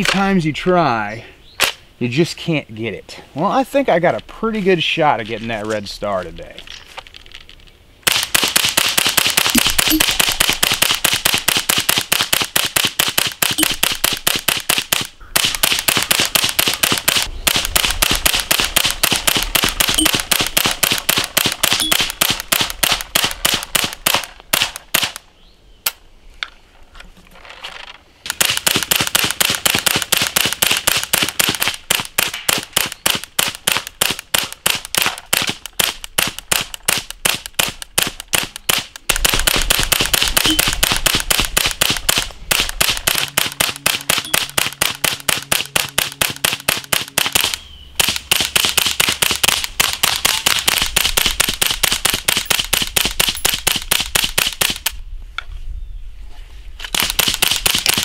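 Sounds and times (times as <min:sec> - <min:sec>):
suppressed rifle rapid fire: 0:08.0 - 0:25.2, 0:28.3 - 0:54.9, 0:56.9 - 0:58.0.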